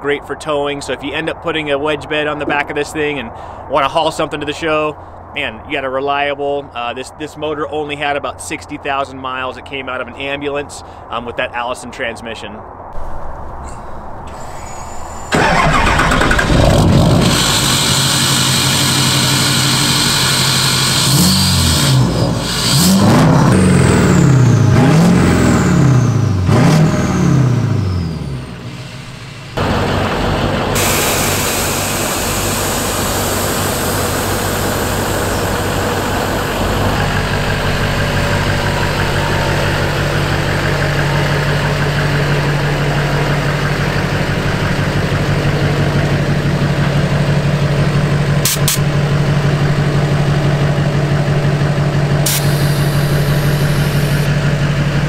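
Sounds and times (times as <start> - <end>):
diesel engine starting and revving: 14.2 - 55.0.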